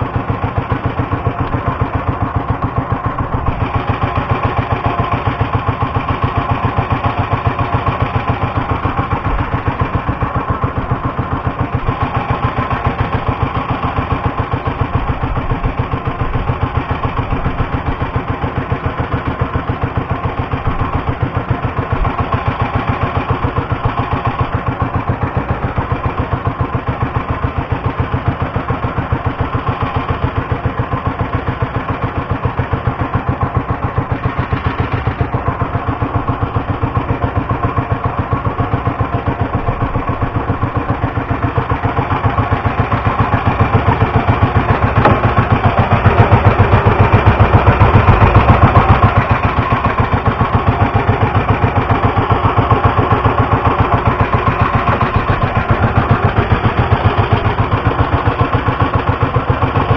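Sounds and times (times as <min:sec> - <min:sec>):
boat engine pulsing: 0:00.0 - 0:59.9.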